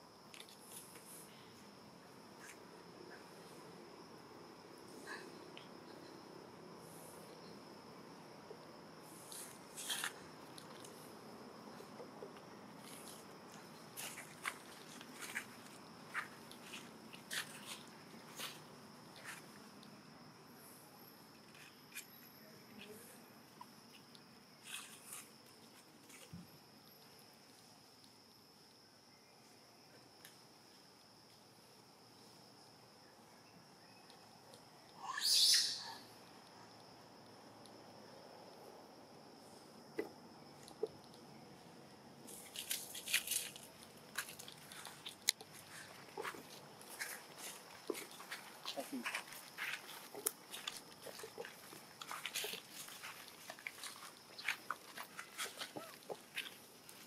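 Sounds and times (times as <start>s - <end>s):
high-pitched insect drone: 35.0s - 36.3s.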